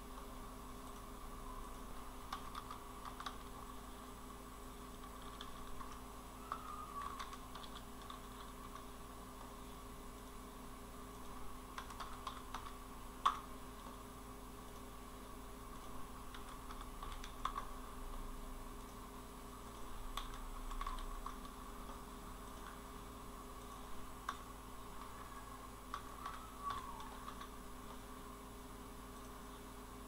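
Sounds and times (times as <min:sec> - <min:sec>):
keyboard typing: 0:00.0 - 0:04.0, 0:04.8 - 0:09.7, 0:11.1 - 0:14.0, 0:15.7 - 0:18.1, 0:19.7 - 0:28.2
low electrical hum: 0:00.0 - 0:30.0.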